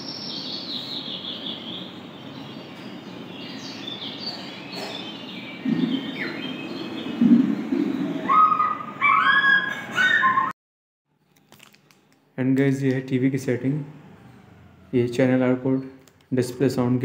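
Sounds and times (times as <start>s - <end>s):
birdsong chirps and trills: 0.0s - 10.5s.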